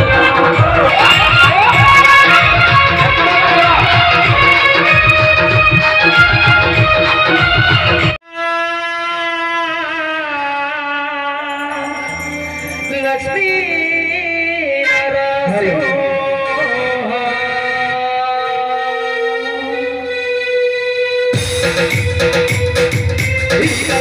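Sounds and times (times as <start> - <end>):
percussion quick steady beat: 11.5 - 14.1, 21.4 - 24.0
man singing over loudspeakers: 12.7 - 20.6.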